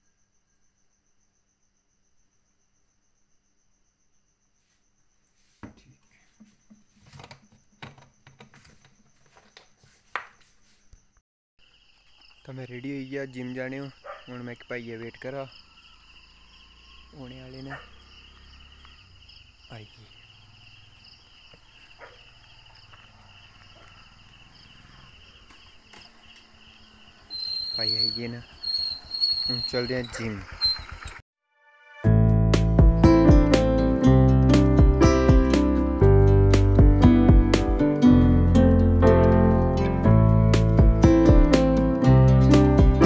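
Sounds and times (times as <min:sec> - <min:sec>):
faint cricket chirr: 0:00.0 - 0:30.8
faint short falling calls: 0:27.2 - 0:31.0.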